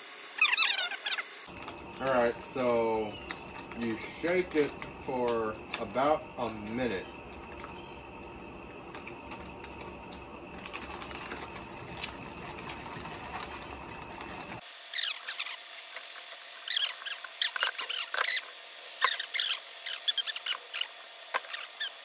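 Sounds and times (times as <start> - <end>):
high squeaks of crinkling plastic: 12.6 - 15.6, 16.6 - 22.0.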